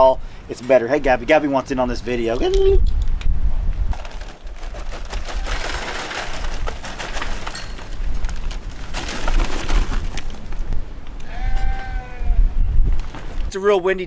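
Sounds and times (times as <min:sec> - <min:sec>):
wind rumble on microphone: 0:01.8 - 0:13.6
charcoal clattering into metal: 0:03.9 - 0:10.4.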